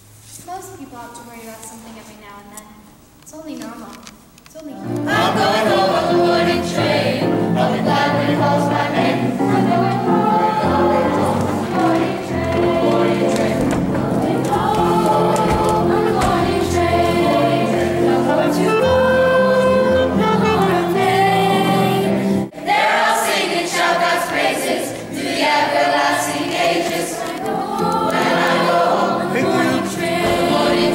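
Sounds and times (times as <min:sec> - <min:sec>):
choir singing: 0:04.9 - 0:30.9
clarinet: 0:17.4 - 0:22.5.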